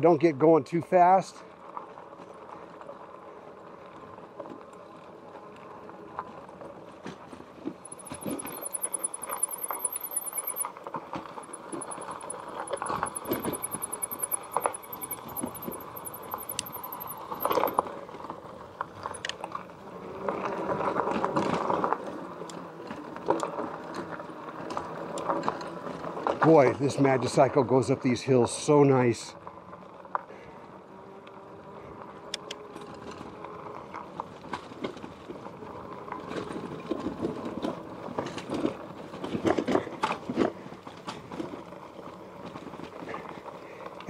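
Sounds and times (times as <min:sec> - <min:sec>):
bike and load rattling: 0:05.2 - 0:19.7, 0:32.7 - 0:44.0
electric motor hum: 0:11.4 - 0:17.8.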